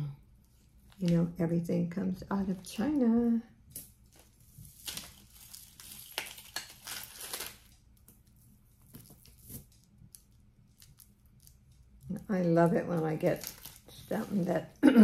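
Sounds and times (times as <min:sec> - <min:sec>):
plastic bags crinkling: 0:04.0 - 0:07.8, 0:13.0 - 0:14.5.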